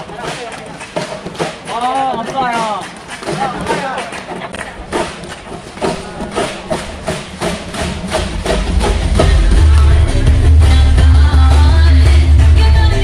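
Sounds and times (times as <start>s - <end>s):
bottles knocking rhythmically: 0.0s - 13.0s
music with heavy bass beat: 4.7s - 13.0s.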